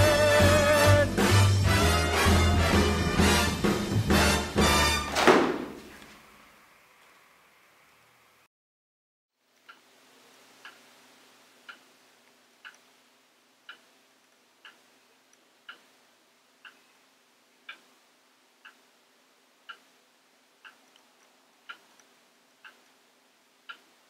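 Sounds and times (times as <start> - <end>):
clock ticking: 0.0 - 3.5, 9.6 - 9.9, 10.5 - 13.0, 13.6 - 16.9, 17.6 - 24.0
faint room hum: 9.4 - 24.0.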